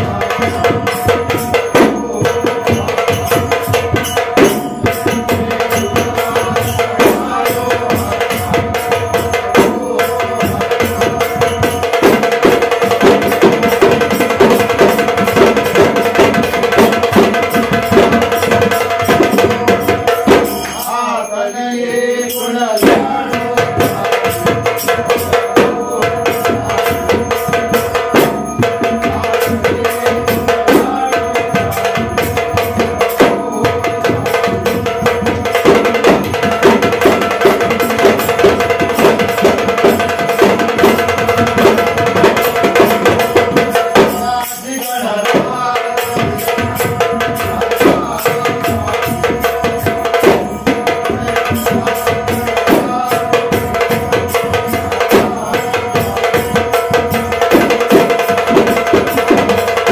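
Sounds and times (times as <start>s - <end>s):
clay-pot drums: 0.0s - 59.9s
drum beaten with sticks: 0.0s - 59.9s
men singing a devotional chant: 0.0s - 59.9s.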